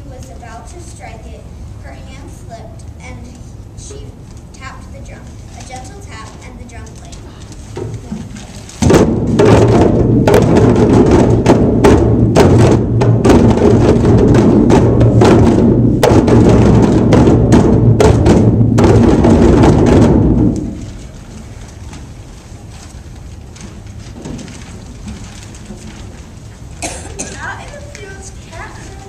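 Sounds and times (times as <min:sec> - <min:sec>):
djembe drums playing: 0:08.8 - 0:21.2.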